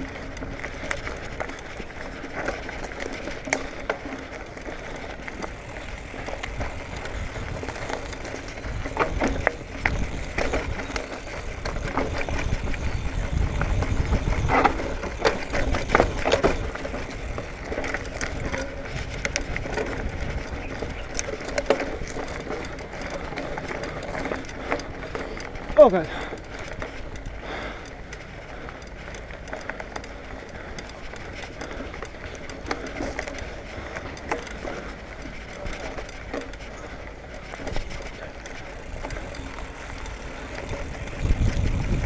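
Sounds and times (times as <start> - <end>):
bike knocking and rattling: 0.0 - 42.0
bike tyres rolling on dirt: 0.0 - 42.0
wind rumble on microphone: 5.9 - 22.4, 38.9 - 42.0.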